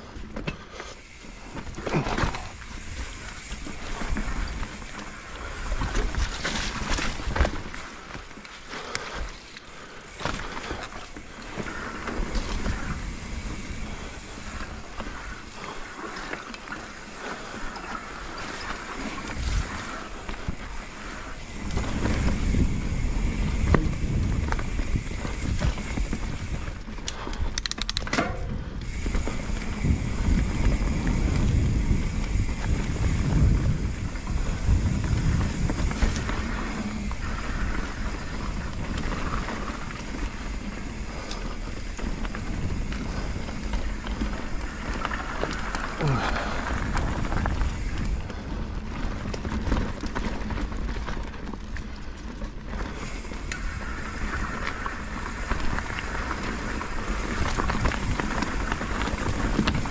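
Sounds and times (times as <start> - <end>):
bike rattling and knocking: 0.0 - 59.9
bike tyres on dirt trail: 0.0 - 59.9
wind buffeting microphone: 18.5 - 27.8, 28.4 - 50.2, 52.9 - 59.9.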